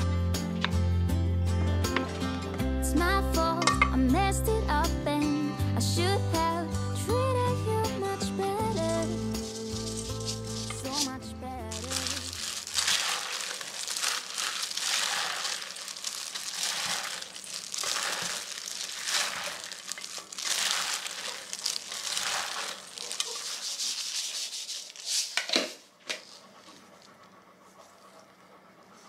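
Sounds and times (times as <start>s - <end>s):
plastic glove crinkling: 8.7s - 11.1s, 11.7s - 25.4s.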